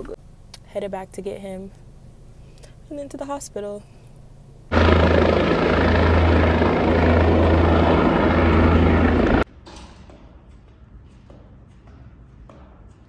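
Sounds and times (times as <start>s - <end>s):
helicopter rotor and engine: 4.7s - 9.4s.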